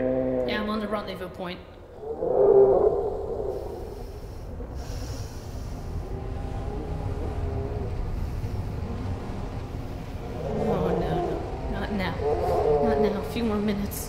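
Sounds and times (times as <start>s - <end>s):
faint hum: 0.0s - 14.0s
low mechanical rumble: 0.0s - 14.0s
hiss: 3.4s - 11.0s.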